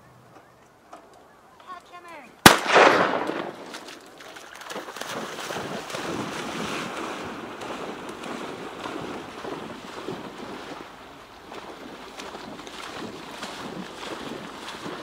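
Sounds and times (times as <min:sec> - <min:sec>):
shotgun shot echo: 0:02.4 - 0:03.9
water splashing: 0:02.5 - 0:15.0.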